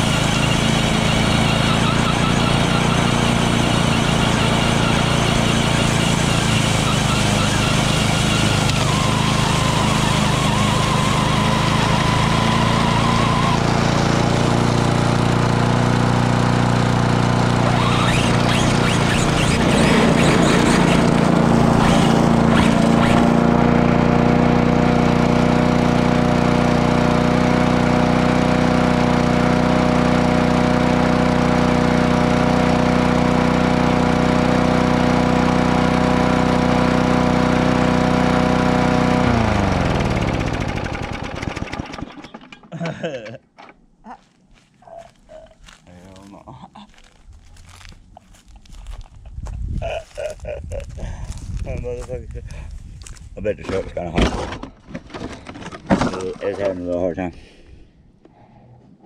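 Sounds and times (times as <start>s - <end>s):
high whine: 0.0s - 14.7s
lawn mower engine running: 0.0s - 43.8s, 53.0s - 56.9s
rattling and clattering: 53.7s - 56.8s.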